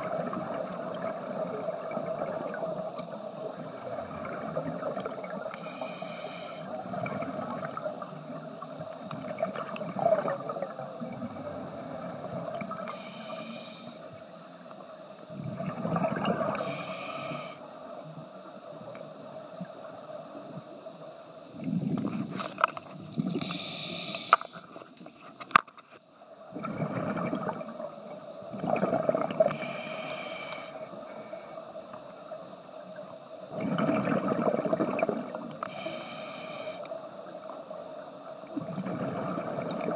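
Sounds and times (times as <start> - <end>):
exhaled air bubbling: 0.0 - 2.6, 3.4 - 5.8, 6.6 - 13.0, 15.3 - 17.5, 21.4 - 22.4, 23.0 - 23.8, 26.4 - 29.7, 32.9 - 35.7, 38.4 - 39.9
faint steady hum: 0.0 - 39.9
scuba regulator breathing: 5.5 - 8.3, 12.9 - 14.3, 16.6 - 17.6, 23.4 - 24.7, 29.5 - 31.7, 35.6 - 36.9.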